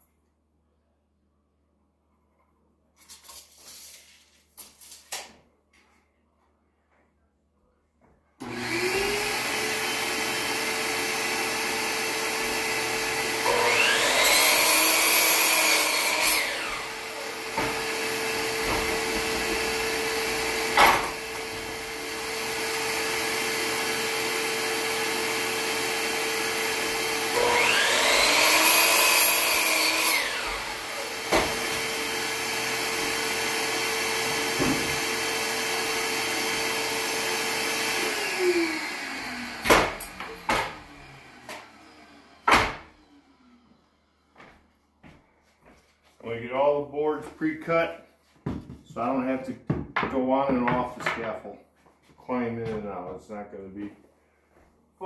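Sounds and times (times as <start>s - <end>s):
miter saw cutting wood: 8.4s - 43.9s
shop vacuum running: 8.4s - 45.2s.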